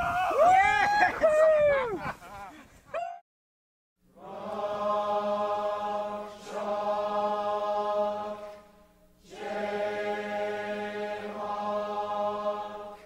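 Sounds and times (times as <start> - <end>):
chant-like chords: 4.1 - 13.0.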